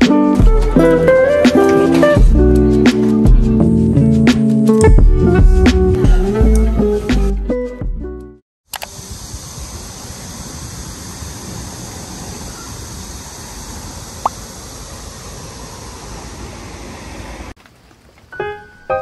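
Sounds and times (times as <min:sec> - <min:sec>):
hissing wash: 0:08.8 - 0:17.6
passing traffic rumble: 0:08.9 - 0:17.6
soft piano music: 0:18.3 - 0:19.0.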